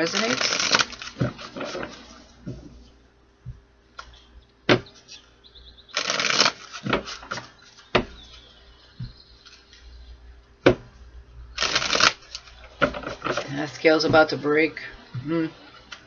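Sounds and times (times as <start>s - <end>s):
cards being shuffled: 0.0s - 2.7s, 11.6s - 13.9s.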